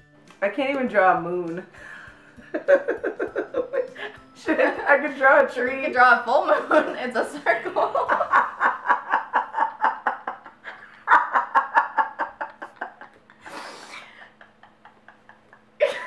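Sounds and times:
women laughing: 0:02.4 - 0:05.1, 0:06.5 - 0:16.0.

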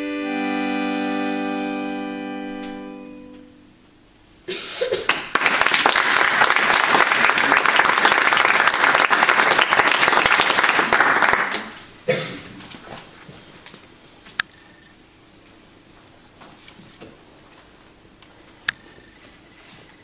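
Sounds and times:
accordion chord: 0:00.0 - 0:04.1
audience applause: 0:05.0 - 0:11.8.

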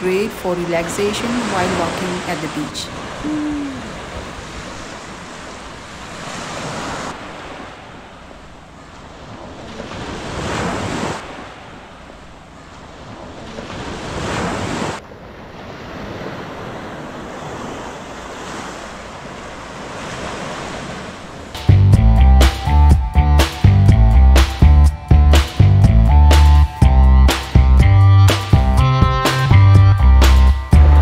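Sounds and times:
waves washing up sandy beach: 0:00.0 - 0:21.6.

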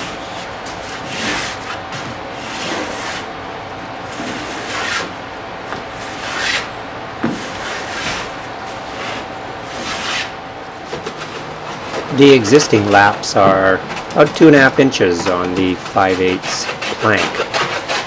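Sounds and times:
hand plane shaving wood: 0:08.9 - 0:10.3, 0:11.0 - 0:18.0.

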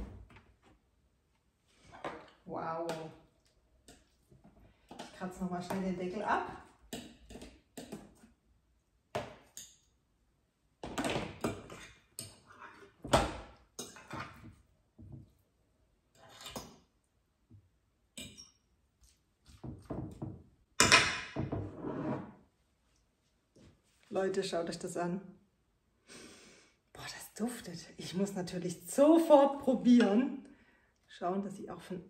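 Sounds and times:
cutlery scraping a container lid: 0:16.2 - 0:16.7.

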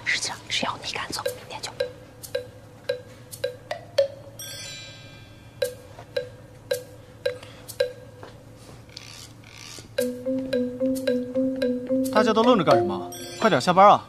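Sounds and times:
ringing plucked notes: 0:10.0 - 0:14.0
shimmering chime flourish: 0:13.0 - 0:13.8.

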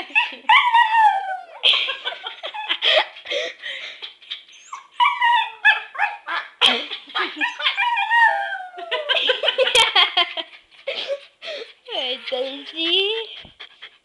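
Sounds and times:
dog howling and whining: 0:00.5 - 0:01.6, 0:04.5 - 0:06.3, 0:07.4 - 0:09.1.

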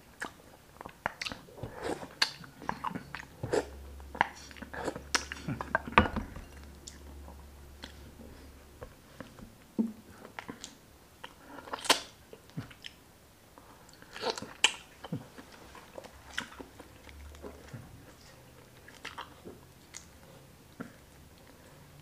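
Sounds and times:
chewing: 0:00.1 - 0:09.5, 0:10.1 - 0:13.0, 0:13.7 - 0:21.8.

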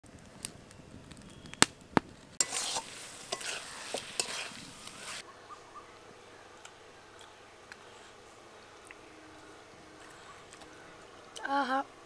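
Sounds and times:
wood fire crackling: 0:00.0 - 0:12.0
chicken sizzling in a pan: 0:02.4 - 0:05.2
spatula scraping a pan: 0:02.4 - 0:05.2.

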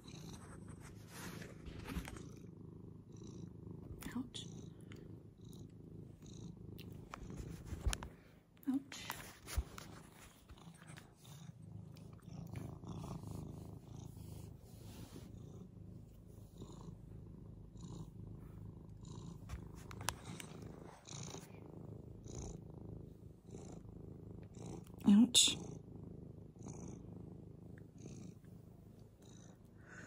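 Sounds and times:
cat purring: 0:00.0 - 0:30.0
faint rustles: 0:00.2 - 0:02.6, 0:06.9 - 0:17.3, 0:18.2 - 0:21.9.

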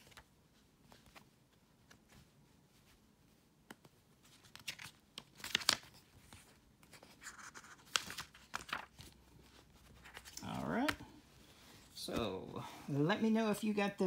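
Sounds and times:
pages turning: 0:00.0 - 0:11.1.

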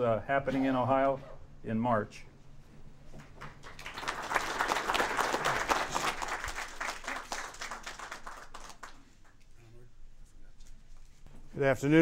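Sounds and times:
audience applauding: 0:03.2 - 0:09.3.

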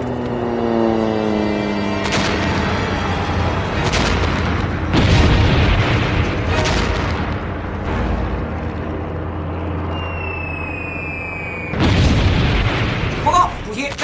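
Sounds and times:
dense rumble: 0:02.1 - 0:10.8, 0:11.4 - 0:13.7
bomb explosions: 0:03.7 - 0:07.9, 0:11.6 - 0:13.7.

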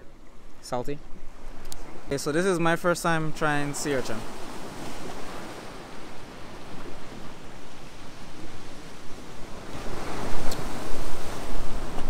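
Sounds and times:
surf on rocky shore: 0:00.2 - 0:12.0
wind on microphone: 0:04.2 - 0:12.0.

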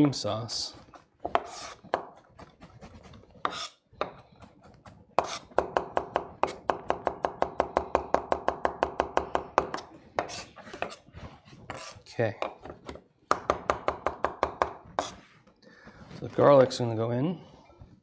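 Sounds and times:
knife chopping on wooden board: 0:01.2 - 0:11.0.

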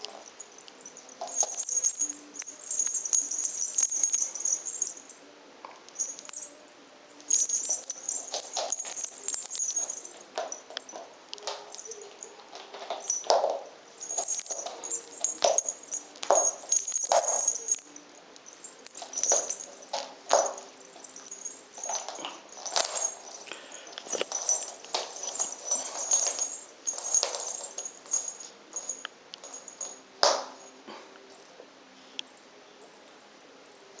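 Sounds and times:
small bells jingling: 0:00.0 - 0:05.2, 0:05.9 - 0:30.8.

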